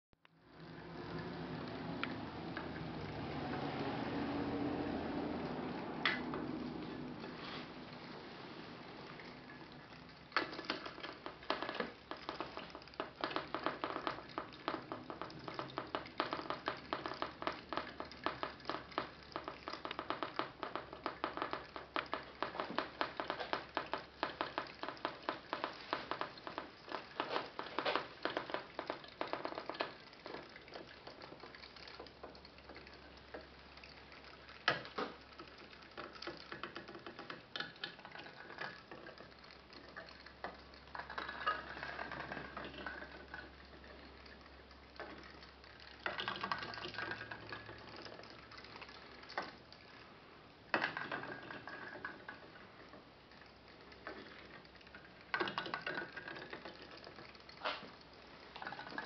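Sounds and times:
steam boat popping crackle: 10.3 - 32.7.

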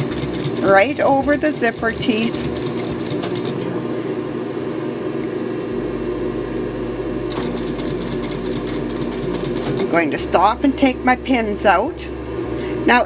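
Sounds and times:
sewing machine running: 0.0 - 3.8, 7.3 - 11.7.

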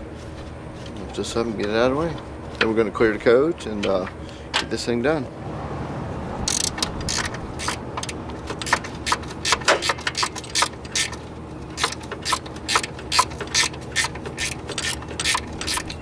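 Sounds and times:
ratchet wrench clicking: 6.5 - 11.2, 11.8 - 16.0.

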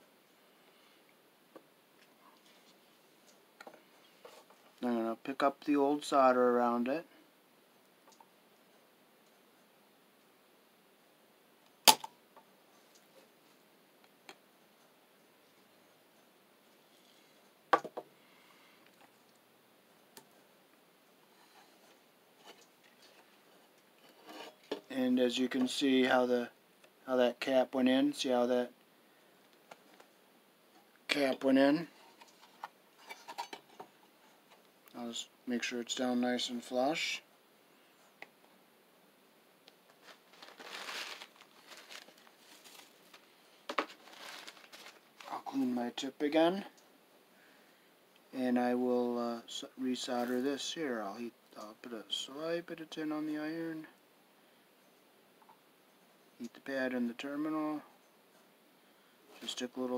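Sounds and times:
soft handling noises: 0.3 - 5.5, 29.3 - 35.1, 39.6 - 46.9
paper crinkling and rustling: 39.9 - 45.6.

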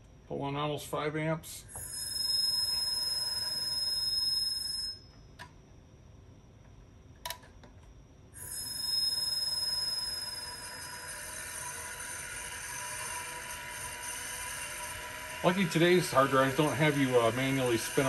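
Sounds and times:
hard drive motor whine: 1.8 - 4.9, 8.4 - 18.0.

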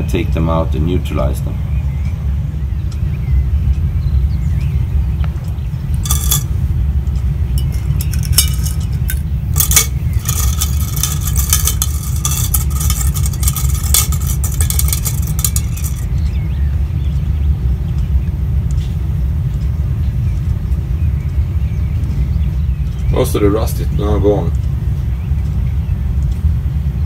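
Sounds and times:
fishing hooks clinking on glass: 6.0 - 6.5, 7.6 - 16.1.

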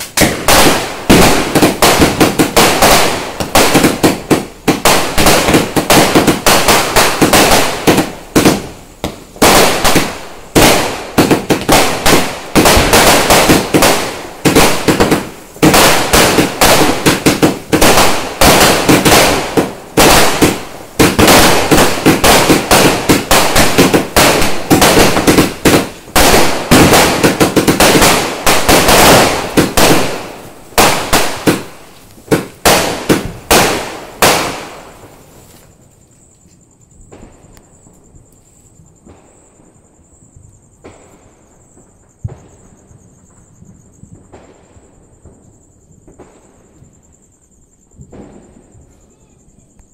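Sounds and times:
fireworks bangs and crackles: 0.0 - 49.9.

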